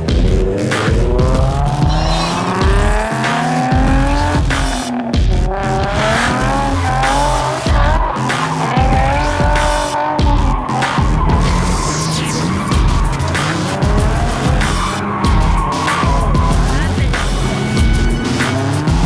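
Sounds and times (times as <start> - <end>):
car engine revving: 0.0 - 19.0
dubstep music with heavy bass: 0.0 - 19.0
tyres squealing: 1.8 - 19.0.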